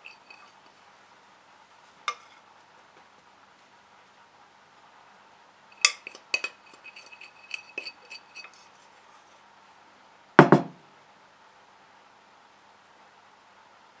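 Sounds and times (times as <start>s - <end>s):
spoon clinking in glass jug: 0.0s - 0.5s, 5.8s - 8.6s
heavy knock: 10.4s - 10.8s.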